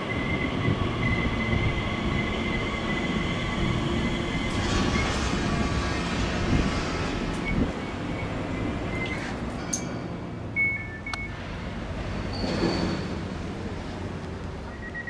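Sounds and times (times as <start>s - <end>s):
train wheels rumbling on rail: 0.0s - 10.5s, 11.4s - 15.0s.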